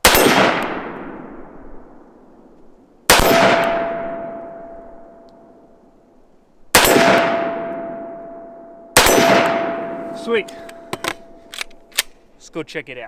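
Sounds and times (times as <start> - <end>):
pistol shots echoing: 0.0 - 1.5, 3.1 - 4.8, 6.7 - 12.1
steady ringing tone: 10.8 - 11.5.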